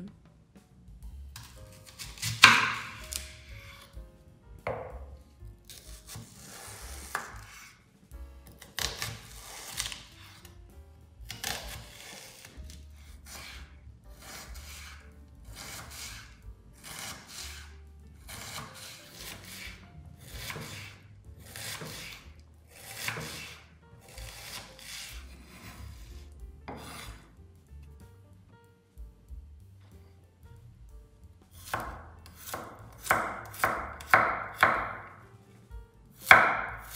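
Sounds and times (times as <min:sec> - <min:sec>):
quiet background music: 0:00.0 - 0:36.9
knife slicing vegetable on board: 0:01.4 - 0:04.0, 0:05.7 - 0:07.8, 0:08.4 - 0:10.5, 0:11.3 - 0:27.3, 0:31.6 - 0:35.2, 0:36.2 - 0:36.9.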